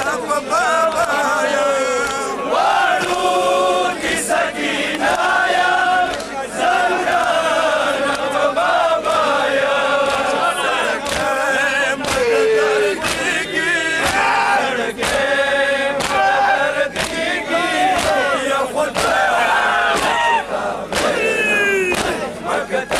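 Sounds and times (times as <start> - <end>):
men chanting in unison: 0.0 - 22.9
hands beating chests: 12.0 - 14.4, 16.0 - 16.4, 17.9 - 18.2, 19.9 - 20.2, 20.9 - 22.3.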